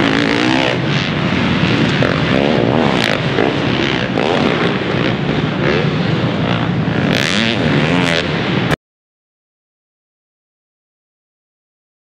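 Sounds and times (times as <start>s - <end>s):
motorcycle engines revving: 0.0s - 8.8s.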